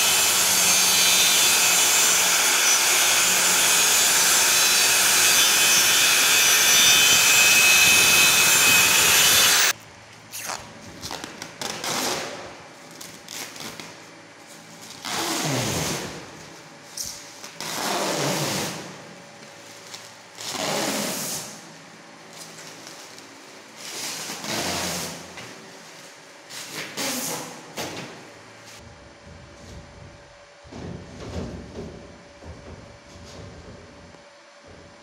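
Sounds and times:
circular saw cutting plastic: 0.0 - 9.8.

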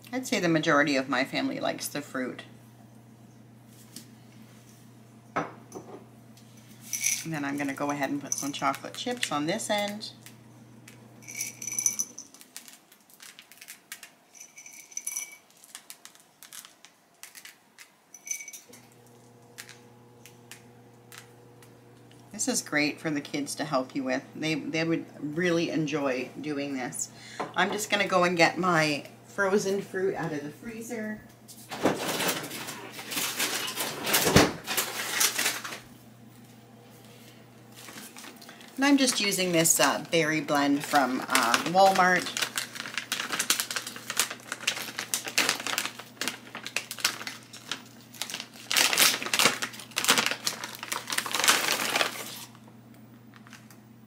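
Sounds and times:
chocolate chips rattling in glass jar: 6.8 - 9.3, 11.2 - 18.6
glass clinking: 11.2 - 12.4, 14.4 - 15.5, 18.2 - 18.8
freezer door opening and shutting: 31.7 - 35.8.

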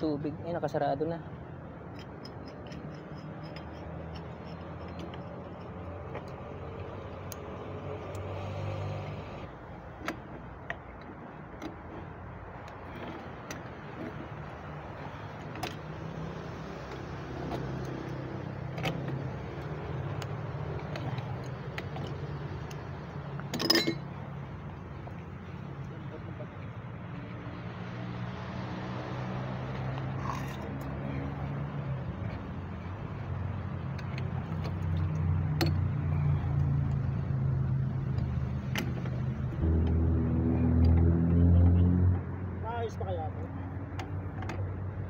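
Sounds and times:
ringing metal clatter: 23.5 - 24.2.

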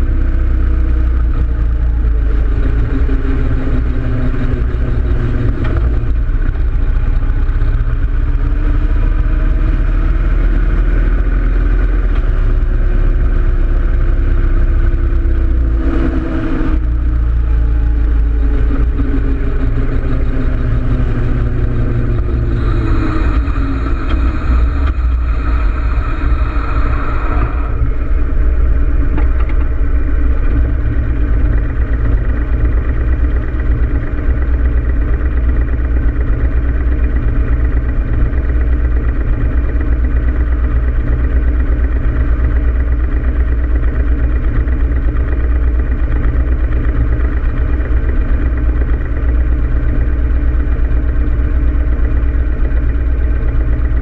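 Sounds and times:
motorcycle engine idling: 0.0 - 54.0
motorcycle engine slowing: 0.0 - 54.0
wind and road hiss: 19.8 - 32.7.

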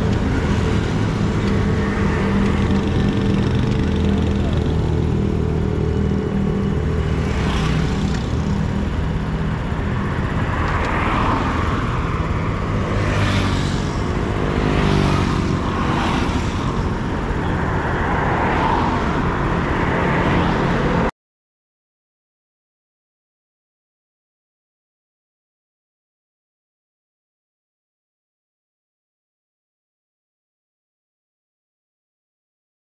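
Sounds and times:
motorcycles and traffic passing: 0.0 - 21.1
motorcycle engine idling: 0.1 - 10.6.

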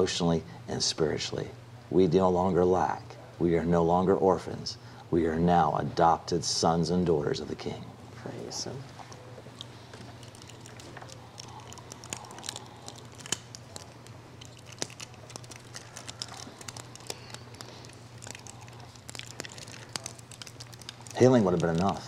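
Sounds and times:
wrappers crinkling and crackling: 9.0 - 22.0.

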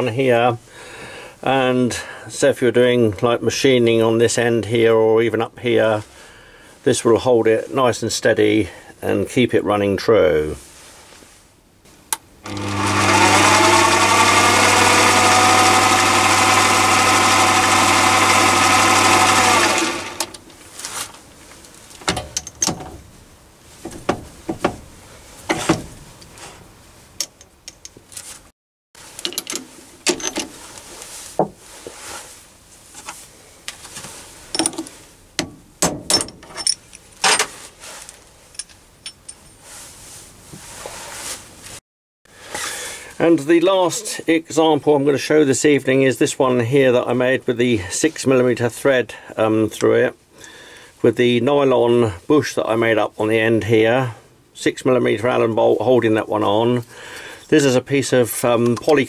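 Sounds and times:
lathe motor whine: 12.4 - 20.4
metal parts clicking and knocking: 22.0 - 23.0, 29.2 - 30.5.

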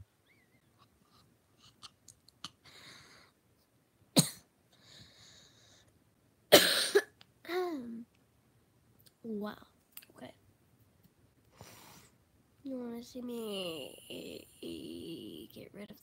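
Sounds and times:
girl coughing: 4.2 - 4.5, 6.5 - 7.8.

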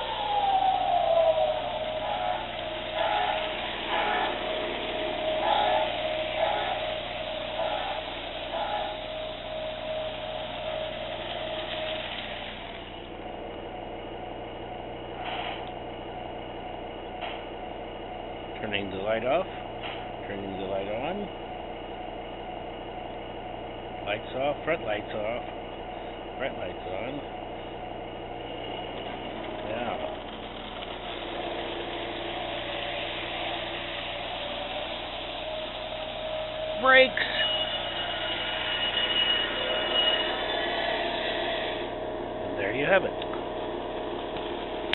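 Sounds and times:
model train motor and wheels: 0.0 - 13.6, 27.8 - 44.9
diesel engine sound effect: 0.0 - 44.9
faint steady hum: 0.0 - 44.9.

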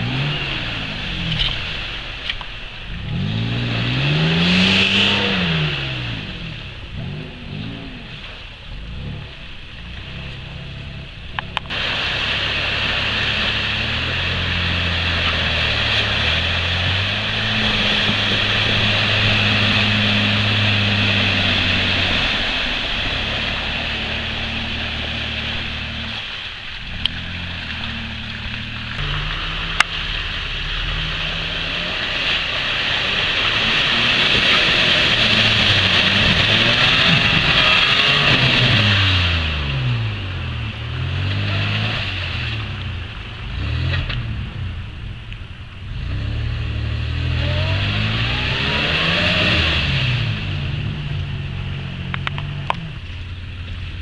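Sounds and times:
engine revving: 0.0 - 54.0
tyres spinning in mud: 7.5 - 39.6.

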